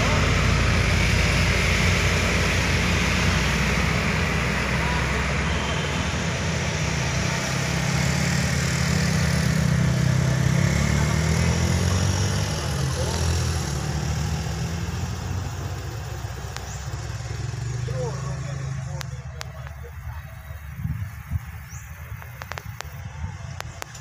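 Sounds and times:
passing traffic engine drone: 0.0s - 24.0s.

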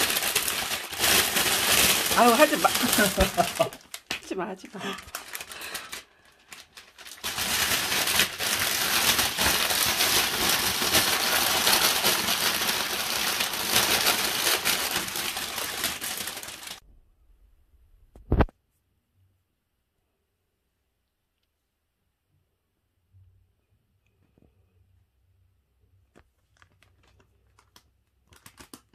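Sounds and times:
plastic bag crinkling: 0.0s - 16.8s, 26.1s - 28.9s.

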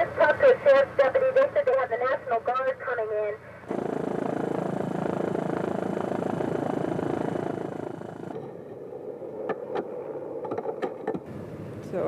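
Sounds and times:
helicopter rotor and turbine: 3.6s - 11.8s.

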